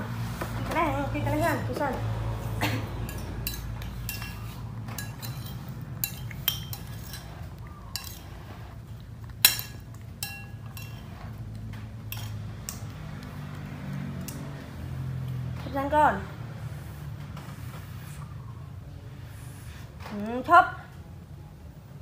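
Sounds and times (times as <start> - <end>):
spoon clinking on ceramic bowl: 3.1 - 8.3, 9.4 - 11.2.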